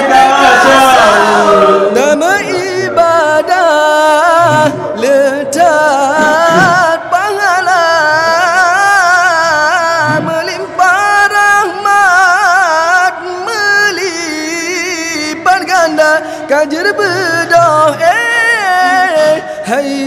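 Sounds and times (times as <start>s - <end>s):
person singing long ornate notes: 1.8s - 20.0s
singer breathing: 16.2s - 16.5s, 19.4s - 19.7s.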